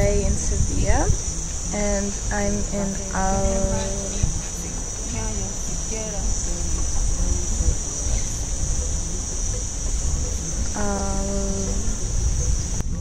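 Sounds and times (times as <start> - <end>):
cicadas droning: 0.0 - 13.0
wind rumble on microphone: 0.0 - 13.0
person making held vocal sound: 1.7 - 4.8.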